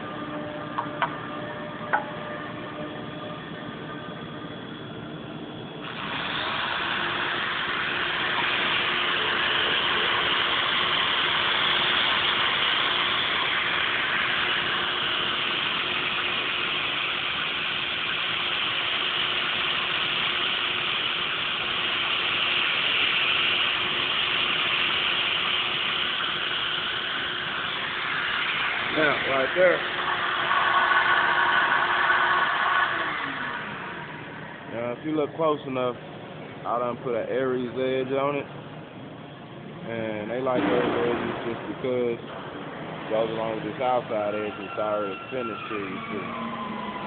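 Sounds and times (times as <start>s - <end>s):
polisher grinding stone edge: 5.9s - 34.1s.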